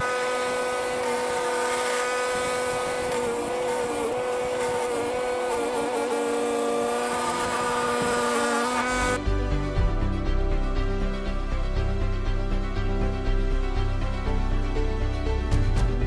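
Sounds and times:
machine whine: 0.0s - 9.2s.

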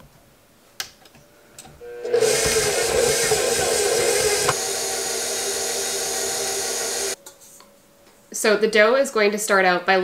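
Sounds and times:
stand mixer motor running: 1.8s - 7.2s.

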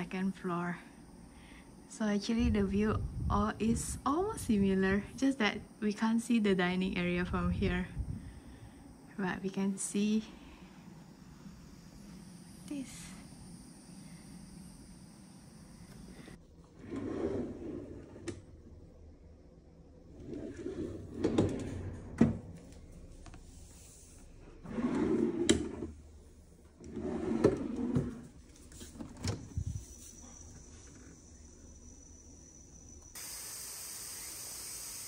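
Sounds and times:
wooden drawers sliding open and shut: 16.7s - 18.5s, 20.1s - 22.5s, 24.6s - 26.0s, 26.8s - 29.6s.

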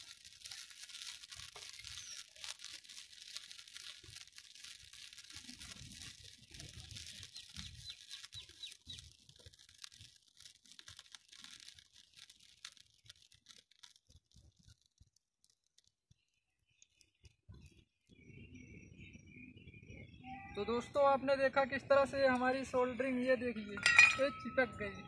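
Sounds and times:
fire crackling and hissing: 0.0s - 25.0s.

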